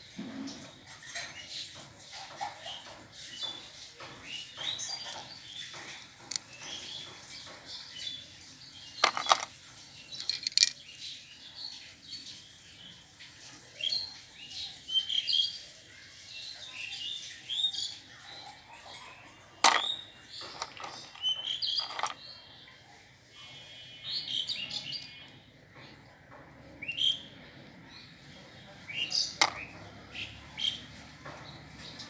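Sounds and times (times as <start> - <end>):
small birds chirping: 0.3 - 32.0
plastic toys clicking together: 5.0 - 7.3, 9.0 - 10.8, 19.6 - 22.2, 29.4 - 29.8.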